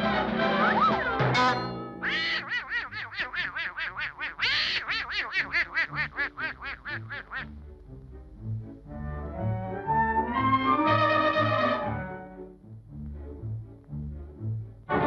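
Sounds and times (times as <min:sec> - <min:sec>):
soft orchestral cartoon music: 0:00.0 - 0:15.0
cartoon duck voice squawking: 0:00.6 - 0:07.6.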